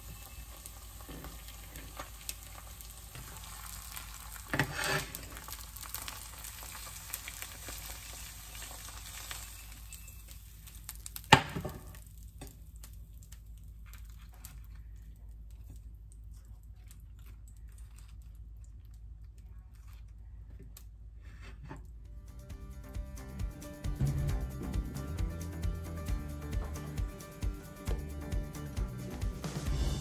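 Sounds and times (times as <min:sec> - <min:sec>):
egg sizzling in a frying pan: 0:00.0 - 0:13.8.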